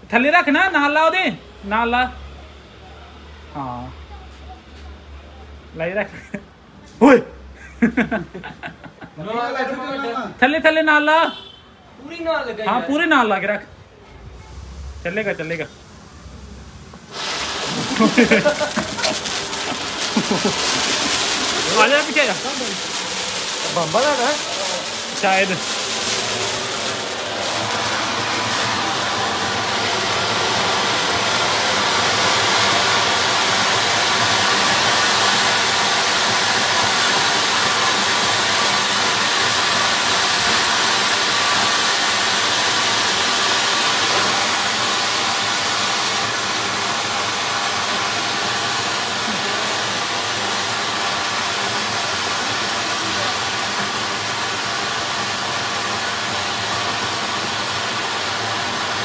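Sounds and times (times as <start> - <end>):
fountain firework hissing: 0.0 - 59.0.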